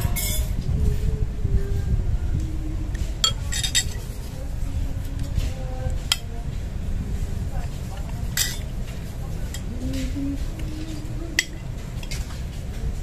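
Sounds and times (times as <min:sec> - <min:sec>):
low rumble: 0:00.0 - 0:13.0
metal spoon scraping ceramic plate: 0:03.2 - 0:04.1, 0:08.4 - 0:08.7.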